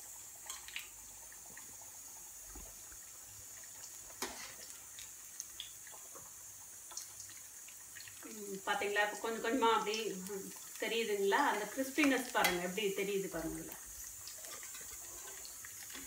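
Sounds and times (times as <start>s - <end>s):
fritters deep-frying in oil: 0.0s - 16.0s
oil popping and crackling: 0.0s - 16.0s.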